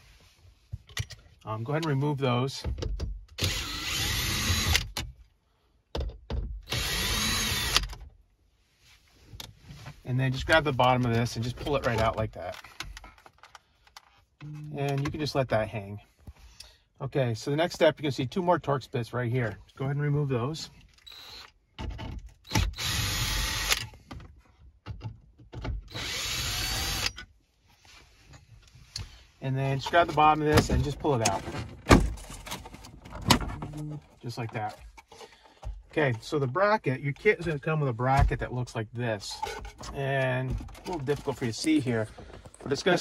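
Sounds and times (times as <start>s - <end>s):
cordless drill motor running: 3.4s - 4.8s, 6.7s - 7.9s, 21.1s - 21.5s, 22.6s - 23.9s, 25.9s - 27.1s.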